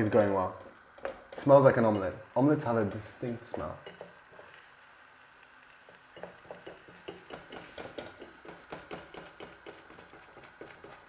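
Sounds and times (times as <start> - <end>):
fork scraping frying pan: 6.1 - 8.6.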